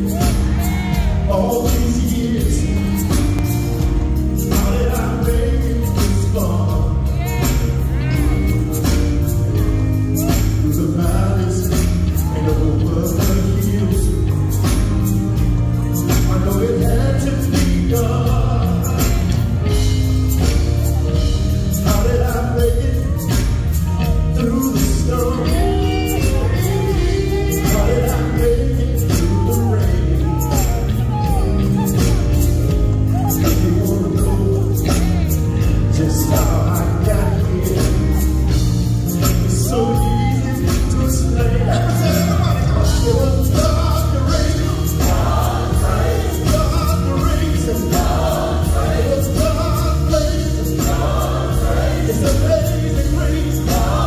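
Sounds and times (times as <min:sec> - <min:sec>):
amplified band with drums and guitars: 0:00.0 - 0:54.0
man singing lead: 0:00.0 - 0:54.0
backing vocalists singing: 0:16.2 - 0:20.0, 0:24.3 - 0:31.4, 0:39.2 - 0:54.0.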